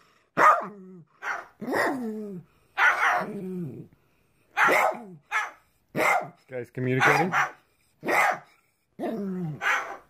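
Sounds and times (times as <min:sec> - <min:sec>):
small dog barking: 0:00.4 - 0:02.0, 0:02.8 - 0:03.3, 0:04.6 - 0:06.4, 0:07.0 - 0:08.5, 0:09.6 - 0:10.0.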